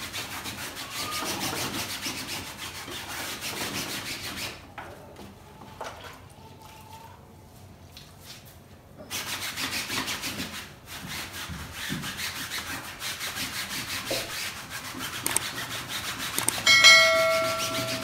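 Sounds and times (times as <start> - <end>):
scrubbing strokes on a frame: 7.9 - 18.0
sharp ringing clang: 16.6 - 18.0.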